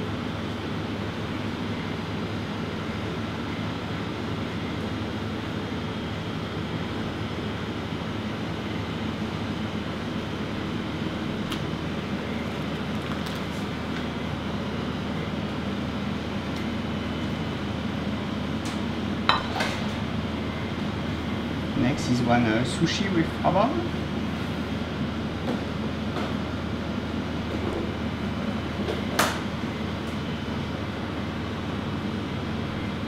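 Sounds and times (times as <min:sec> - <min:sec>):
kitchen ventilation hum: 0:00.0 - 0:33.0.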